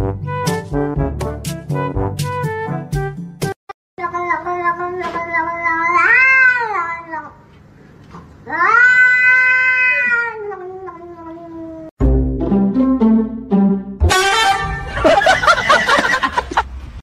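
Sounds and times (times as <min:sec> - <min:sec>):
cat yowling: 0:05.4 - 0:07.4, 0:08.5 - 0:11.9.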